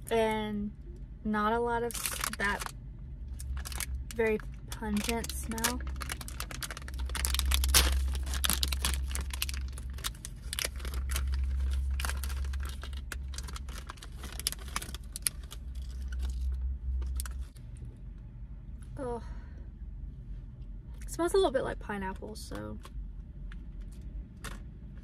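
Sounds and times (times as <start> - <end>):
snack wrapper crinkling and tearing: 1.9 - 2.7, 3.3 - 17.6.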